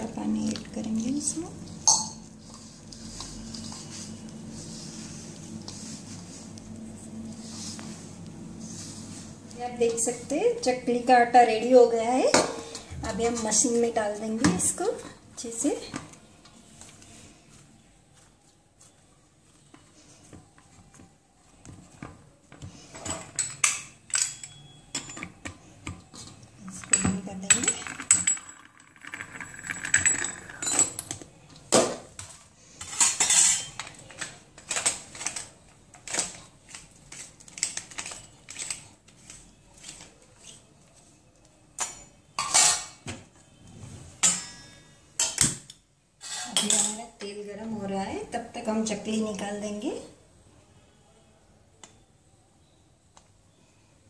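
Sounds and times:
metal utensils and dishes clinking: 26.1s - 31.2s, 32.8s - 36.4s, 41.8s - 43.0s, 44.2s - 45.5s, 46.2s - 47.1s.

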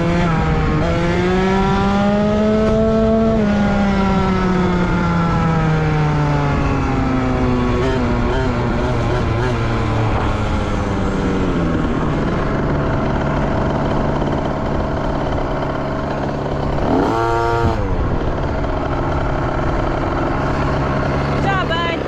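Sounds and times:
dirt bike engine revving: 0.0s - 22.0s
dirt bike engines running: 0.0s - 22.0s.

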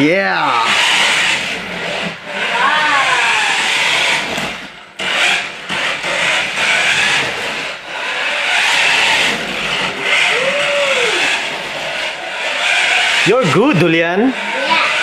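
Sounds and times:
toy car motor whirring: 0.4s - 15.0s
tyres on hardwood floor: 0.8s - 10.0s.

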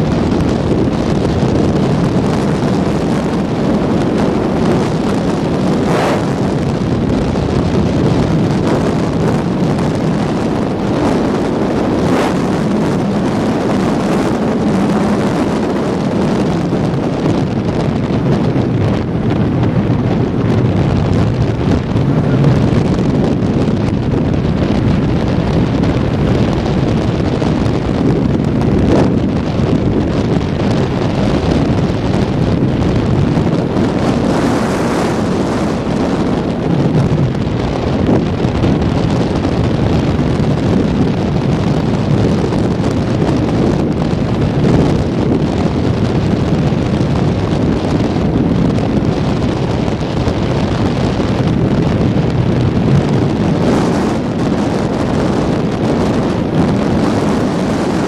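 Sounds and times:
motorcycle engine and road noise: 0.0s - 58.0s
wind noise on microphone: 0.0s - 58.0s.

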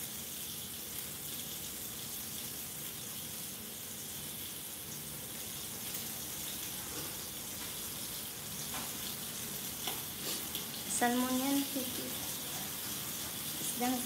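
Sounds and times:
fish sizzling in a skillet: 0.0s - 14.0s.

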